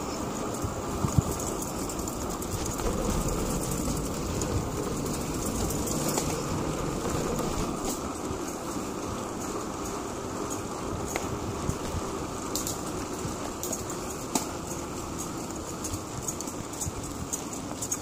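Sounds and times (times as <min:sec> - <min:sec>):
wind buffeting microphone: 0:00.0 - 0:17.8
bicycle tyres rolling on pavement: 0:00.0 - 0:18.0.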